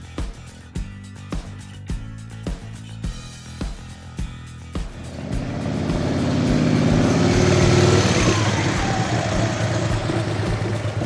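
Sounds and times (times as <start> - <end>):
vehicle driving past: 5.0 - 11.0.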